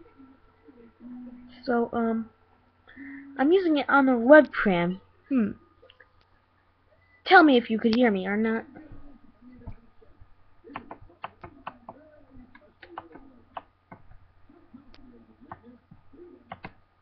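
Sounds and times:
low background murmur and hum: 0.0s - 17.0s
computer keys clicking: 10.7s - 14.1s, 16.5s - 16.8s.

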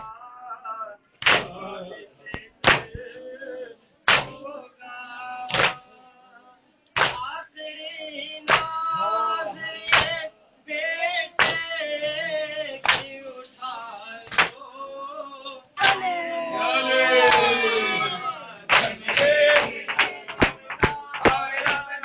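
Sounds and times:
men chanting a lament: 0.0s - 22.0s
hands slapping chests: 1.2s - 1.5s, 2.4s - 3.0s, 4.1s - 4.4s, 5.5s - 5.8s, 7.0s - 7.2s, 8.5s - 8.7s, 9.9s - 10.2s, 11.4s - 11.7s, 12.8s - 13.1s, 14.3s - 14.6s, 18.7s - 21.9s.

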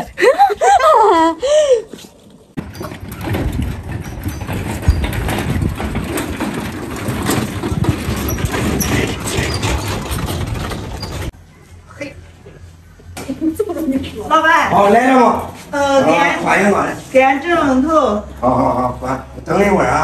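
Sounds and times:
wheels rumbling over dirt lane: 2.4s - 11.4s.

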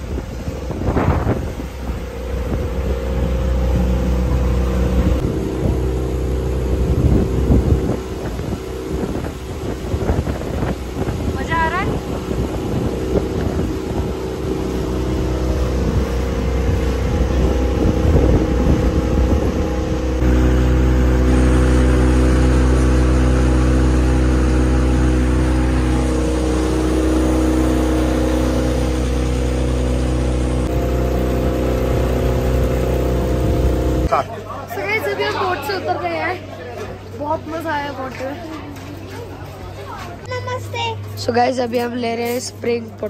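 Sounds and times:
water rushing past hull: 0.0s - 34.1s
wind on microphone: 0.0s - 34.1s
motorboat engine running: 0.0s - 43.0s.

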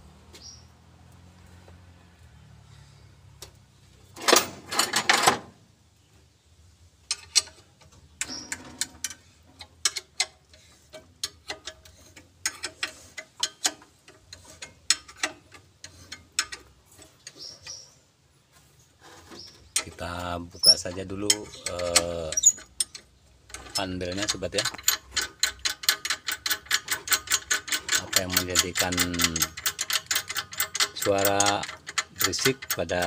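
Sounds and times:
metal clatter: 4.2s - 5.5s, 7.1s - 17.8s, 19.0s - 33.0s
wrench clicking on bolts: 7.1s - 17.8s, 19.6s - 33.0s.

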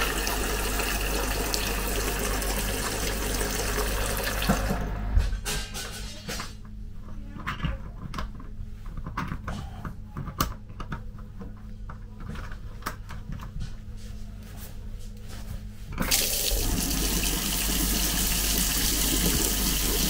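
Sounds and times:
water rushing from a tap: 0.0s - 4.8s, 16.0s - 20.0s.

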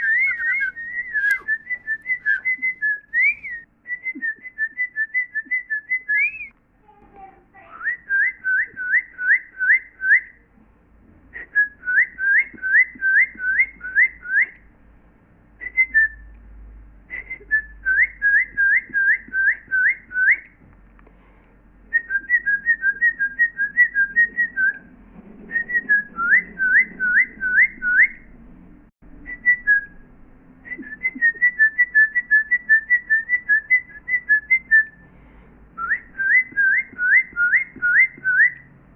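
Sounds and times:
birdlike whistling with trills: 0.0s - 5.0s, 5.6s - 6.5s.

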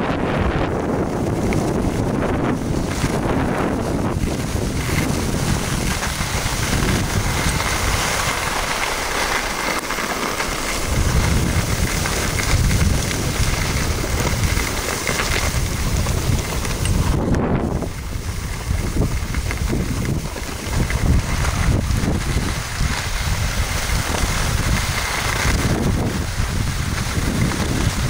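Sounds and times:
skis sliding over snow: 0.0s - 28.0s
wind buffeting microphone: 0.0s - 28.0s.

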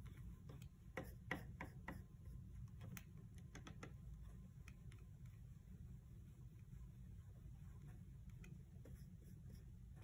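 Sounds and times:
paintbrush clicking and tapping: 0.0s - 5.5s, 8.2s - 10.0s.

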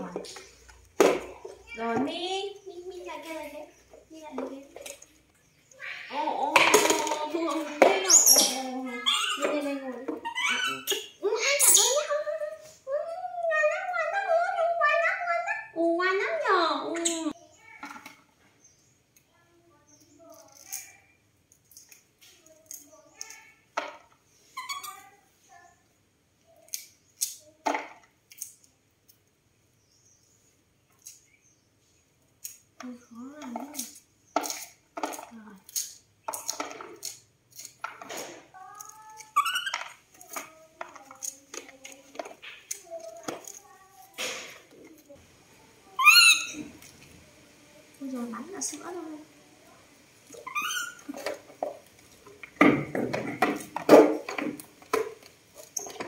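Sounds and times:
baby monkeys squealing: 5.7s - 6.3s, 8.0s - 12.3s, 24.5s - 25.1s, 39.2s - 40.0s, 45.9s - 46.8s, 50.3s - 51.2s
corn kernels cracking off cob: 26.6s - 29.3s, 33.8s - 45.0s.

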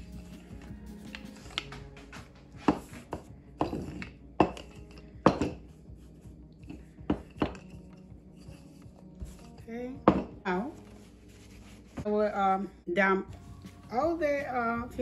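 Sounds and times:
rolling pin knocking on countertop: 2.6s - 5.6s, 10.0s - 10.4s.

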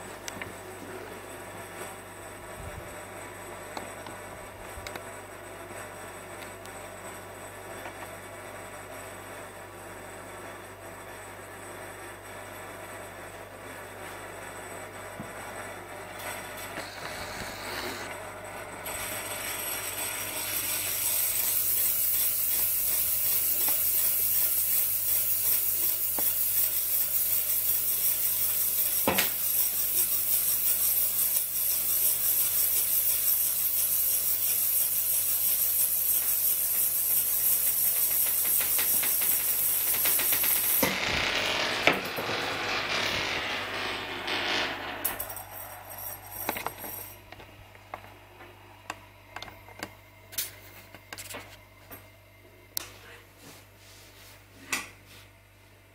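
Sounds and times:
spinning metal top hissing: 16.7s - 18.1s, 18.9s - 47.3s.

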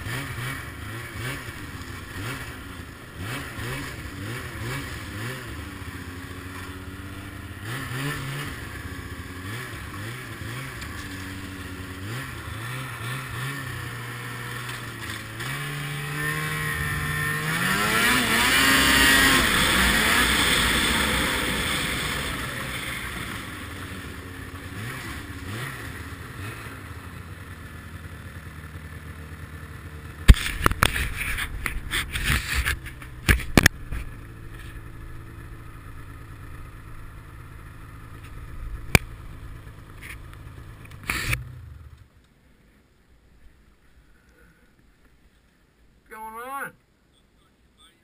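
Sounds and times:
snowmobile engine idling: 0.0s - 45.5s
sharp knocks and scrapes: 30.3s - 34.8s.

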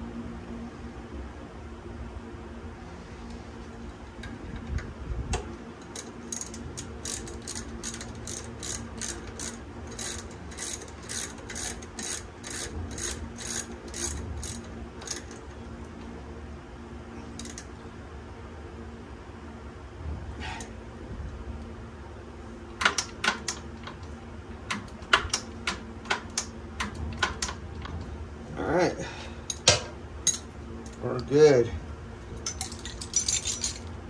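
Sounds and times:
ratchet wrench clicking: 5.8s - 15.4s, 17.4s - 17.7s.

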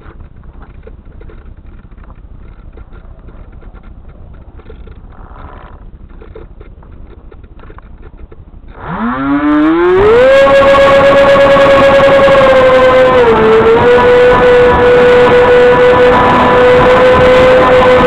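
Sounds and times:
rustling with light clicks: 0.0s - 8.8s
small motor whining: 8.7s - 18.0s.

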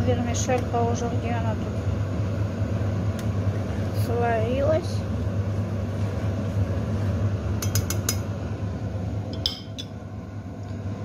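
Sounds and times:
steady low hum: 0.0s - 11.0s
metal utensil clinking on pot: 9.4s - 9.9s.

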